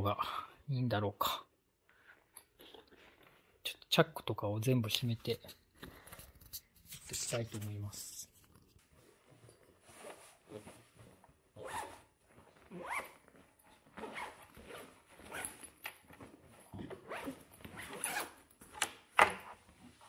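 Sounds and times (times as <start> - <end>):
backpack zippers zipping: 11.6 - 16.2, 16.9 - 18.4.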